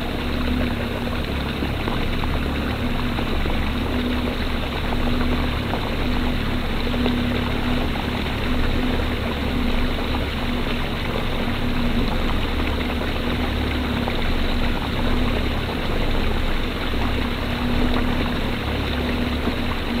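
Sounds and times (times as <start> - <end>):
boat motor droning: 0.0 - 20.0
rushing water: 0.0 - 20.0.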